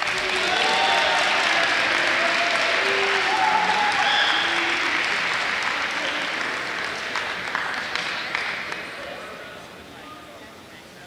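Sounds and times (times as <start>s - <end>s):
audience applauding: 0.0s - 9.1s
people shouting: 0.2s - 4.1s.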